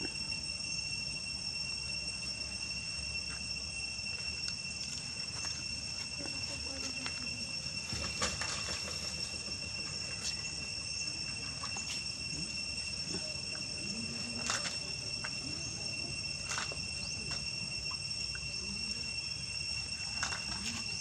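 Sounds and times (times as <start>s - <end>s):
high-pitched insect drone: 0.0s - 21.0s.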